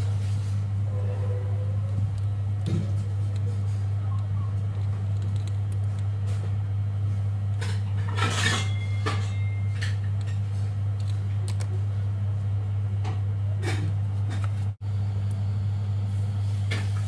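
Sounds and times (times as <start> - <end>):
steady low hum: 0.0 - 17.0
metallic clatter with ring: 8.1 - 10.0.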